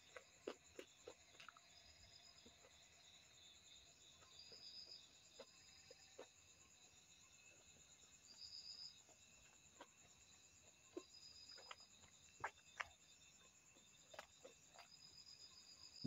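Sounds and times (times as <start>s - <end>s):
mouth clicks from chewing: 0.0s - 3.0s, 8.4s - 15.7s.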